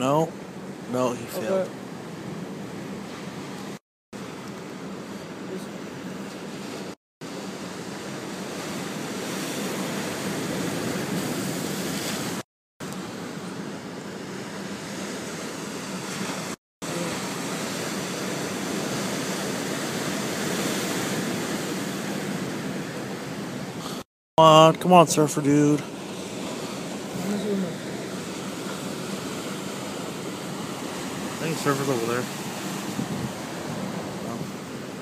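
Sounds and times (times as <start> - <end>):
waves breaking over rocks: 6.6 - 12.4, 14.8 - 24.0, 25.6 - 35.0.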